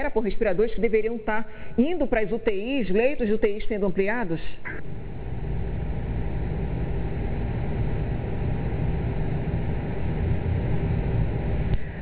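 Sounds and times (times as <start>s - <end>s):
faint hum: 0.0s - 12.0s
low rumbling hiss: 4.4s - 12.0s.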